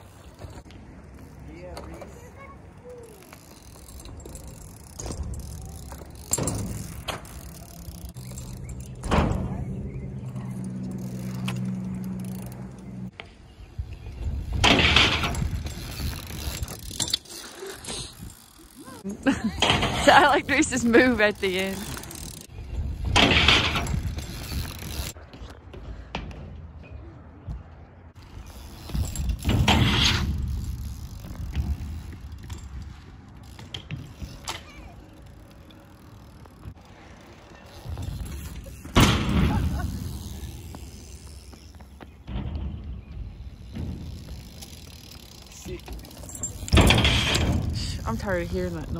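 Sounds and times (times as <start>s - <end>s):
tyre noise on ramp: 0.0s - 48.9s
freewheel hub ratcheting: 3.2s - 9.1s, 20.2s - 25.2s, 39.8s - 41.6s
bike clacks and knocks: 3.2s - 18.6s, 19.3s - 20.7s, 21.7s - 36.8s, 37.4s - 48.9s.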